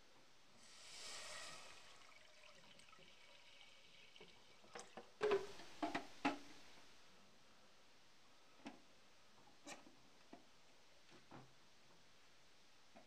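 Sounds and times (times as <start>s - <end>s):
water pouring into a saucepan: 0.6s - 5.2s.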